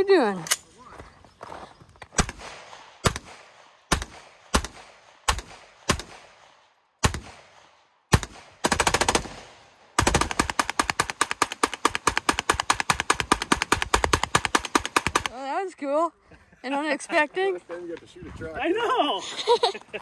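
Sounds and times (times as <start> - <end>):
rifle gunshots: 2.2 - 15.3.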